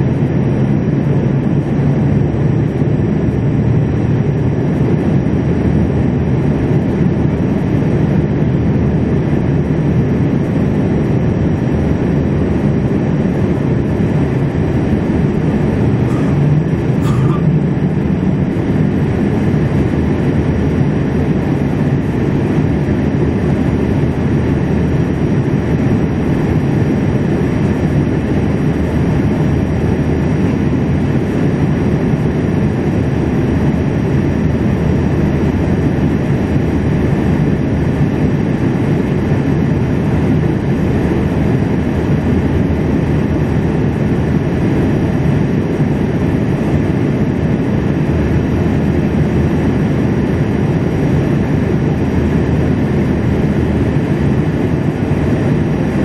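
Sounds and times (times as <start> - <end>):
jet engine rumble: 0.0 - 56.0.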